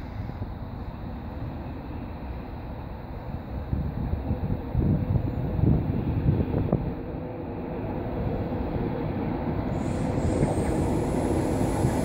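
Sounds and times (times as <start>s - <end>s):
wind buffeting microphone: 3.6s - 12.0s.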